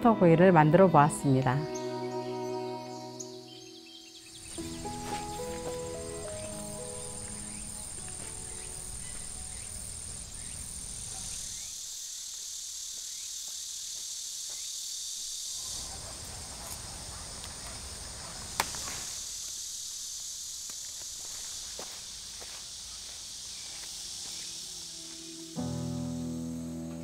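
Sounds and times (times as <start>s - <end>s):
insects chirring: 1.3s - 27.0s.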